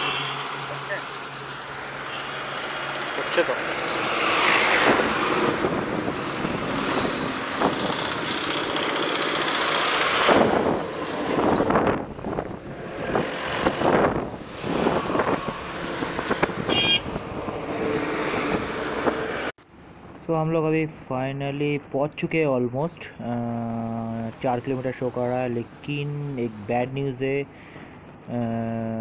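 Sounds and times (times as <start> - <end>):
road and traffic noise: 0.0 - 29.0
wind buffeting microphone: 4.0 - 8.8, 10.2 - 19.5.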